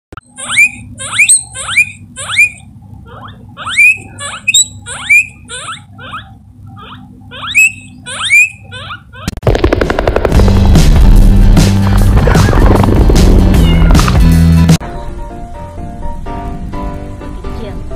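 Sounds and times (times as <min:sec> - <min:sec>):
guinea pig squealing: 0:00.2 - 0:09.4
music: 0:09.4 - 0:17.9.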